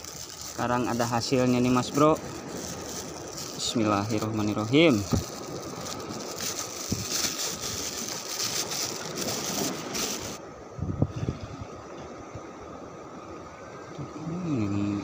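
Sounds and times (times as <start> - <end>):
plastic bag crinkling: 0.0 - 10.4
waves: 0.0 - 15.0
wind: 0.0 - 15.0.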